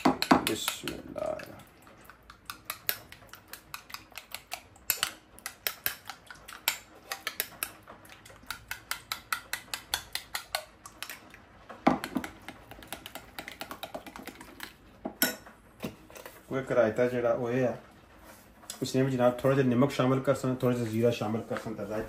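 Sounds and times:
utensil whisking in a bowl: 0.0s - 14.9s.

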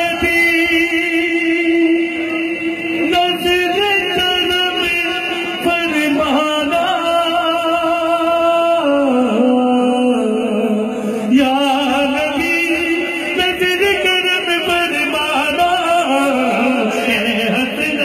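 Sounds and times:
person singing a devotional hymn: 0.0s - 18.0s.

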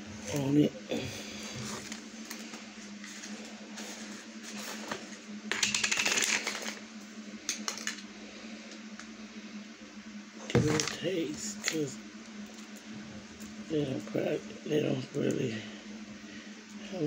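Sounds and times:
steady low hum: 0.0s - 17.0s
plastic crinkling rattle: 5.5s - 6.8s.

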